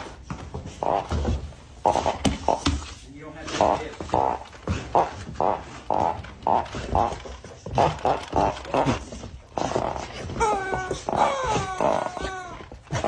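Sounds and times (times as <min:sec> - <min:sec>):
rubber chicken toy squawking: 0:10.4 - 0:12.6.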